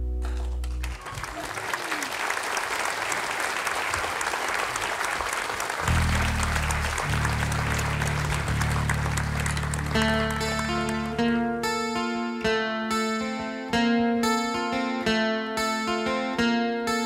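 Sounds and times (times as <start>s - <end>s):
audience applauding: 0.2s - 11.2s
acoustic guitar notes: 5.8s - 17.0s
low sustained instrument notes: 5.9s - 12.5s.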